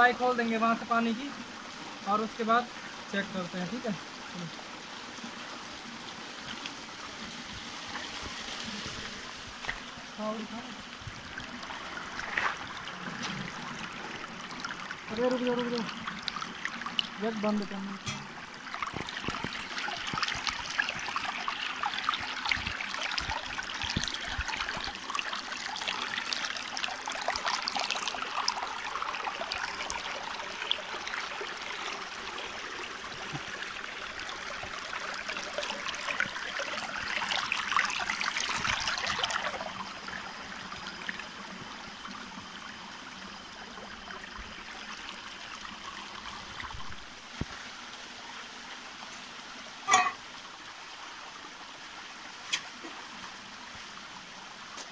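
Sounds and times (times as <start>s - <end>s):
water splashing over stones: 6.0s - 48.2s.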